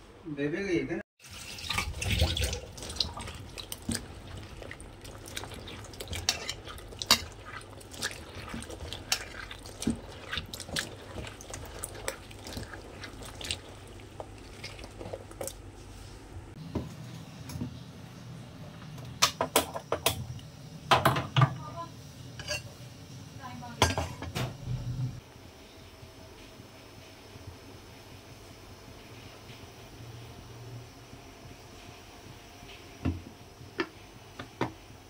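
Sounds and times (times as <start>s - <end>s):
water splashing in a bowl: 1.2s - 15.6s.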